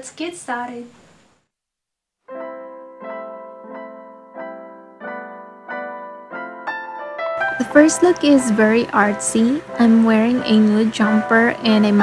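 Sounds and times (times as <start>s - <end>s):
piano-like keyboard music: 2.3s - 12.0s.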